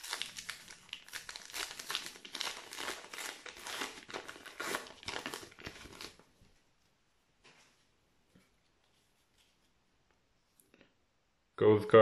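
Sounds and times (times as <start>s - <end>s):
wrapper being torn open: 0.0s - 6.2s
plastic wrapper crinkling: 0.0s - 6.3s.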